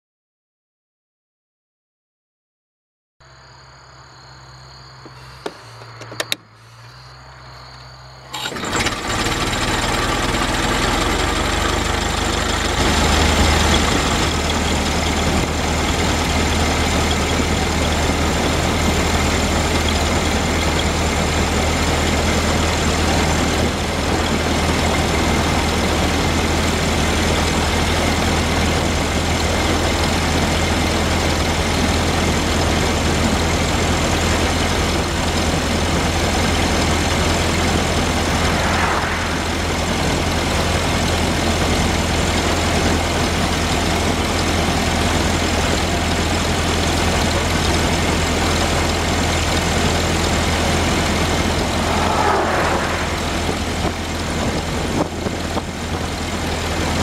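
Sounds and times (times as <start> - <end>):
road and wind noise: 3.2 - 57.0
clicks: 5.0 - 6.5
car engine running: 8.2 - 57.0.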